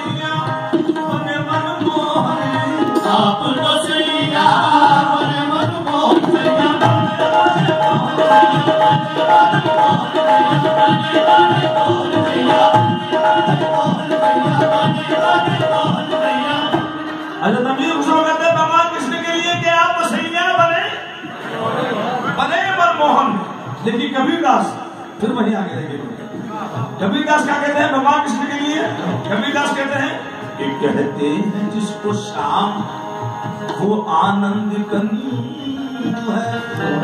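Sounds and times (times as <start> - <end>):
hand drum rhythm: 0.0 - 17.1
harmoniums playing: 0.0 - 37.0.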